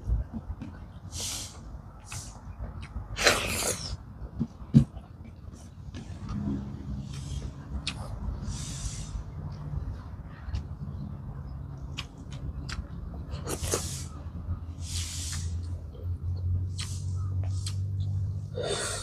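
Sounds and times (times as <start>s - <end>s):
short hissing breaths: 1.1s - 2.4s, 8.4s - 9.3s, 13.6s - 15.7s
person chewing: 2.0s - 4.0s, 6.1s - 8.9s, 11.9s - 14.1s, 15.3s - 18.3s.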